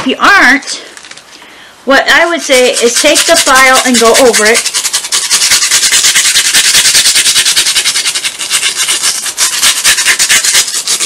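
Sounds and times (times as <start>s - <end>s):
nail file rasping: 2.6s - 11.0s.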